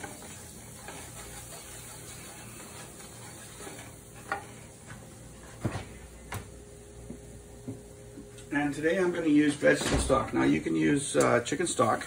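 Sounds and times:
whisk tapping and scraping pan: 0:00.0 - 0:04.5
butter sizzling: 0:00.0 - 0:05.6.

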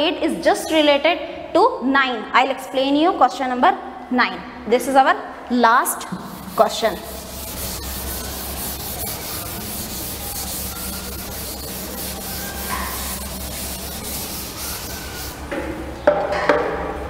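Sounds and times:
duster rubbing on chalkboard: 0:06.0 - 0:15.6.

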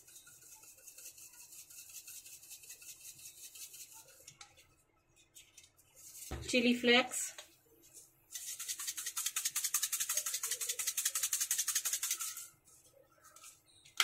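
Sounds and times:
flakes rattling in plastic shaker: 0:08.3 - 0:12.5.

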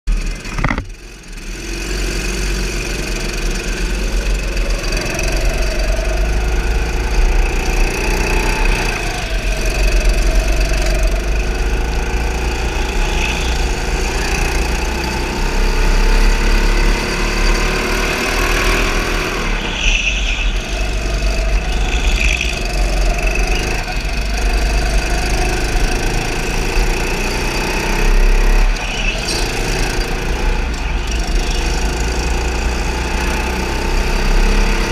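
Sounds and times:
go-kart motor whine: 0:00.1 - 0:34.9
tyre squeals: 0:17.4 - 0:24.7, 0:27.9 - 0:32.2.

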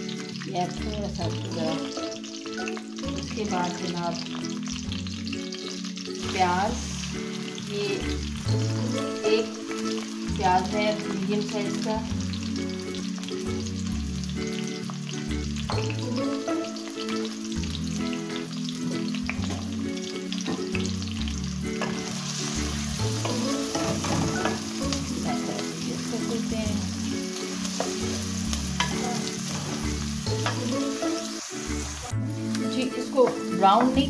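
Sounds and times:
low background tune: 0:00.0 - 0:34.0
onion sizzling in hot oil: 0:00.0 - 0:34.0
wooden spoon scraping a pan: 0:22.7 - 0:24.7, 0:28.8 - 0:30.7.

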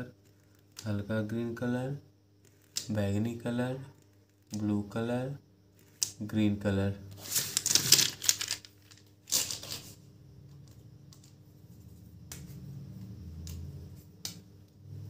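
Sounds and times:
plastic pens clattering: 0:07.2 - 0:09.9.

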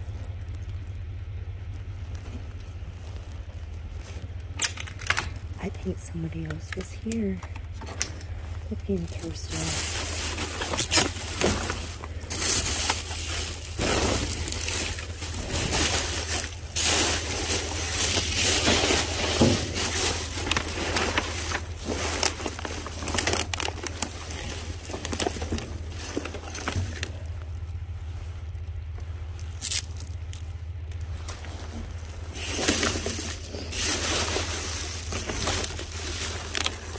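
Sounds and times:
plastic trash bags rustling: 0:00.0 - 0:36.9
steady low hum: 0:00.0 - 0:36.9
objects scraping and knocking: 0:09.5 - 0:23.8.

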